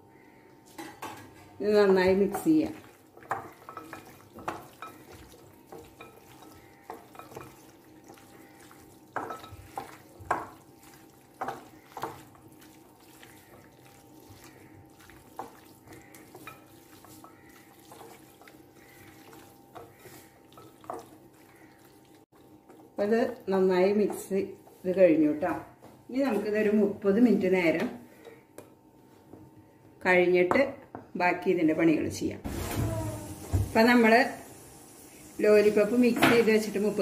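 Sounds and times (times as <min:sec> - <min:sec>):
wet mixing by hand: 0:01.8 - 0:26.7.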